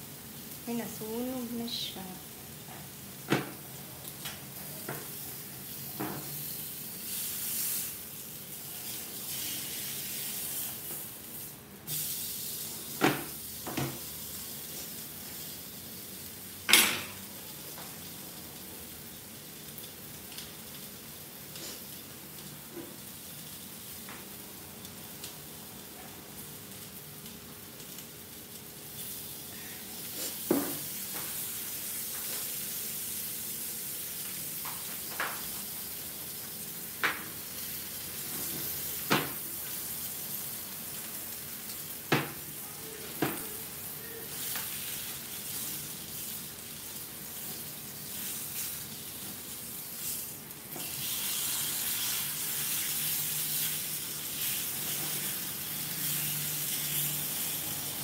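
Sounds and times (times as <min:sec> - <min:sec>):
fish sizzling in oil: 0:00.0 - 0:58.0.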